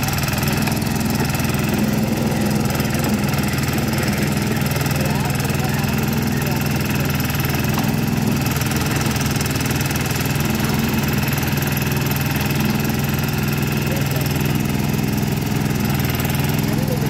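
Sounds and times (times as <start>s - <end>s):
backhoe engine running: 0.0s - 17.0s
hydraulic arm digging soil: 0.0s - 17.0s.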